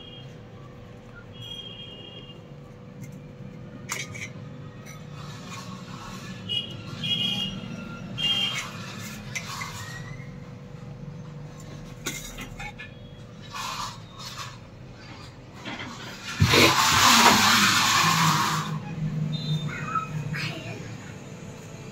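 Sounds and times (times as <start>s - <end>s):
knife scraping on steel plate: 3.0s - 10.4s.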